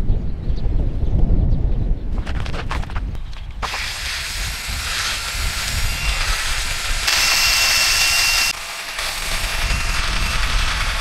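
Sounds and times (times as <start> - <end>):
loud high-pitched hiss: 3.6 - 11.0.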